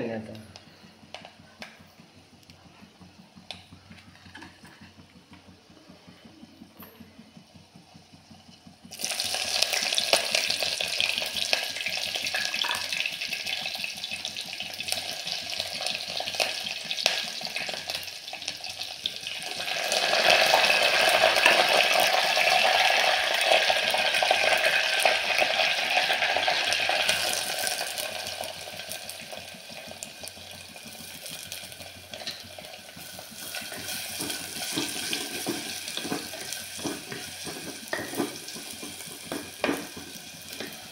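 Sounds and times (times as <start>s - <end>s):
hot oil sizzling: 7.4s - 40.9s
spoon stirring onions: 31.0s - 40.9s.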